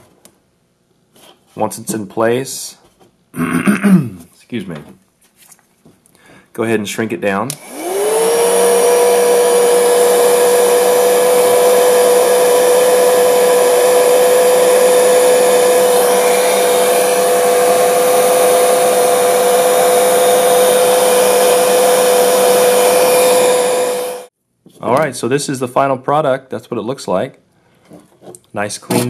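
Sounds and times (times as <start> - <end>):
heat gun fan whine: 7.5 - 24.3.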